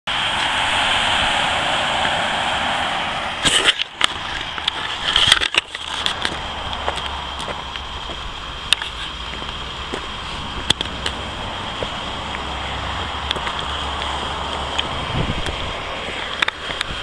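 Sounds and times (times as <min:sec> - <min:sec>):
wind noise on microphone: 0:10.0 - 0:17.0.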